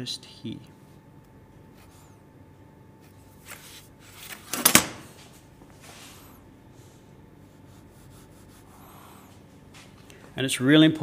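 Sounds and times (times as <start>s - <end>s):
pencil stroke on board: 7.5s - 9.2s.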